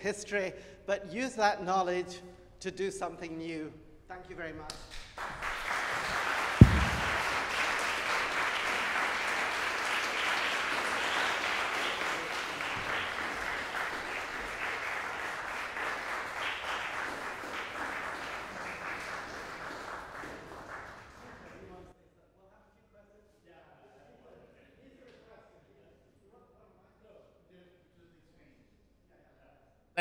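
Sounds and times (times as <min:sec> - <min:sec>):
audience applause: 0:05.2 - 0:21.8
loud sharp thump: 0:06.6 - 0:07.5.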